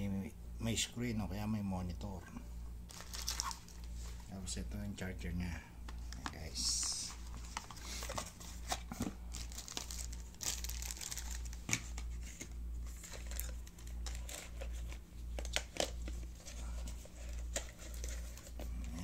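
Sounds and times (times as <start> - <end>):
low pulsing hum: 0.0 - 19.0
packaging crinkling and rustling: 2.9 - 4.3, 6.1 - 19.0.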